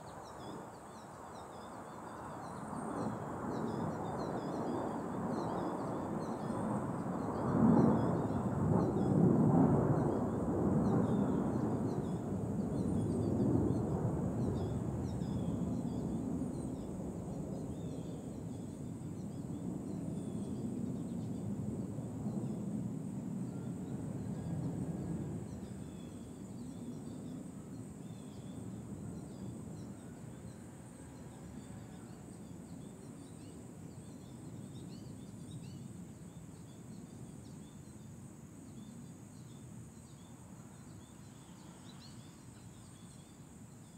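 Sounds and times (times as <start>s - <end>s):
distant jet rumble: 2.5s - 29.8s.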